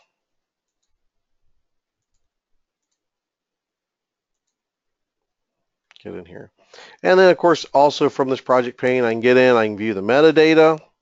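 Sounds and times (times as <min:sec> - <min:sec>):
computer mouse clicks: 0:00.0 - 0:01.0, 0:02.0 - 0:03.1, 0:04.3 - 0:04.6.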